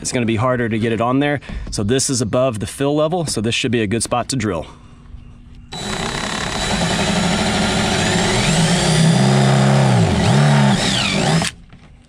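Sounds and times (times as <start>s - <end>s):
drill bit through plastic: 5.7s - 11.6s.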